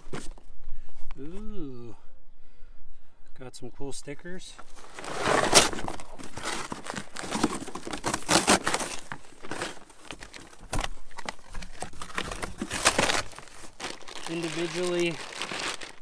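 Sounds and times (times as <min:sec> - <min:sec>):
packaging crinkling and tearing: 0:04.7 - 0:16.0.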